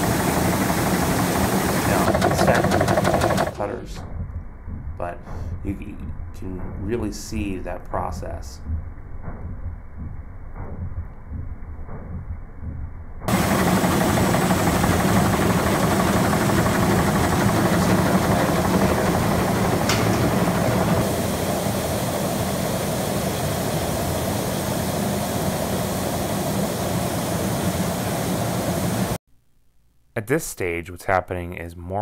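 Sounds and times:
factory machinery running: 0:00.0 - 0:09.4, 0:13.2 - 0:29.2
low hum: 0:00.0 - 0:29.8.

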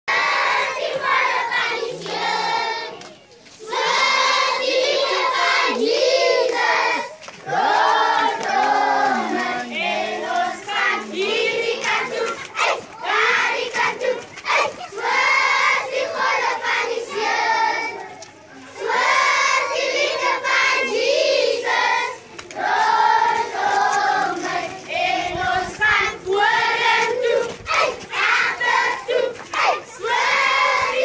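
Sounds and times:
children singing together: 0:00.1 - 0:03.0, 0:03.6 - 0:18.1, 0:18.7 - 0:31.0
hand claps: 0:07.2 - 0:09.7, 0:10.3 - 0:12.6.

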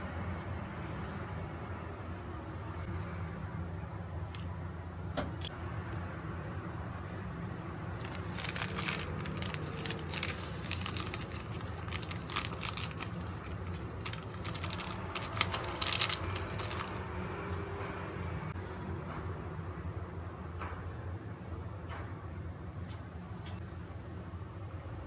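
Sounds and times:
foil sachet crinkling: 0:08.0 - 0:17.0.

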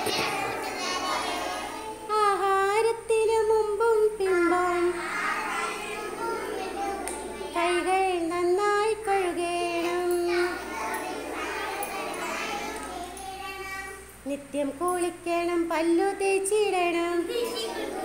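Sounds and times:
children singing together: 0:00.0 - 0:02.6, 0:03.9 - 0:14.1, 0:17.2 - 0:18.0.

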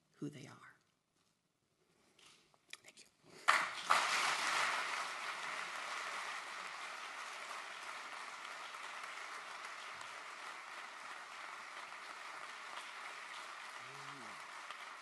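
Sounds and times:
audience applauding: 0:03.4 - 0:15.0.

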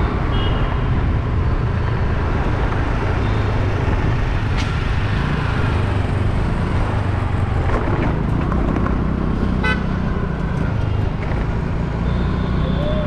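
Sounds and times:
vehicle engine hum and road noise: 0:00.0 - 0:13.0
vehicle horn toot: 0:00.3 - 0:00.8, 0:09.6 - 0:09.9.

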